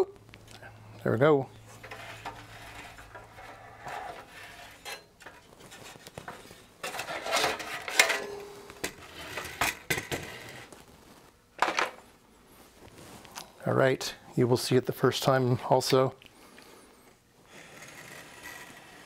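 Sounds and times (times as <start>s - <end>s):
sheet metal scraping and clinking: 1.7s - 6.0s, 6.8s - 10.6s.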